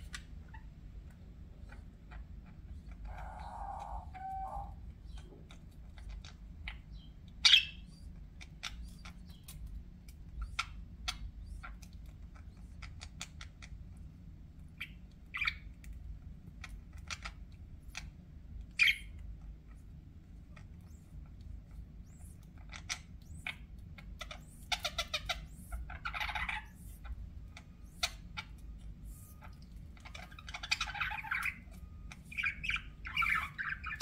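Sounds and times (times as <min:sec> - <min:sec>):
low buzzy bird call: 0:02.7 - 0:05.3
budgerigar squawks: 0:03.0 - 0:04.8.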